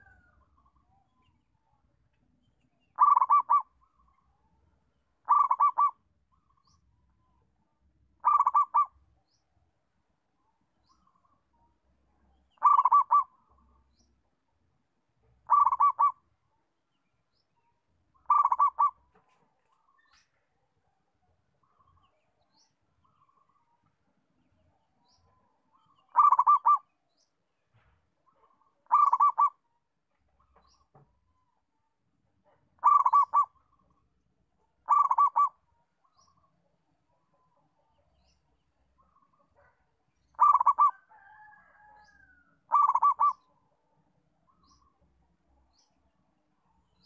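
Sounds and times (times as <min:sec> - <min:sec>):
dove cooing: 0:03.0 - 0:03.7, 0:05.2 - 0:06.0, 0:08.2 - 0:09.0, 0:12.6 - 0:13.3, 0:15.4 - 0:16.2, 0:18.2 - 0:19.3, 0:26.1 - 0:26.8, 0:28.8 - 0:29.6, 0:32.8 - 0:33.6, 0:34.8 - 0:35.6, 0:39.6 - 0:42.0, 0:42.7 - 0:43.5.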